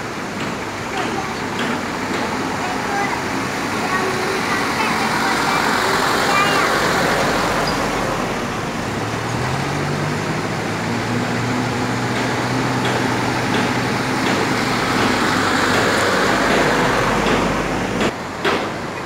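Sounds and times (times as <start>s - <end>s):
diesel truck engine driving past: 3.7s - 18.1s.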